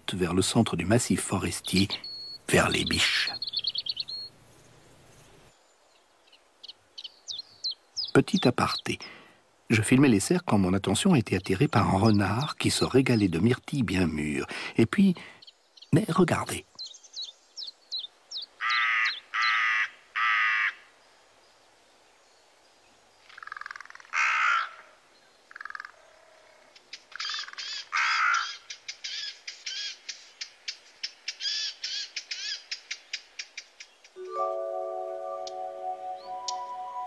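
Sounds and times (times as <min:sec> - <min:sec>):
harsh raspy animal calls: 0:23.4 - 0:24.9, 0:25.5 - 0:28.6
music: 0:34.2 - 0:37.0.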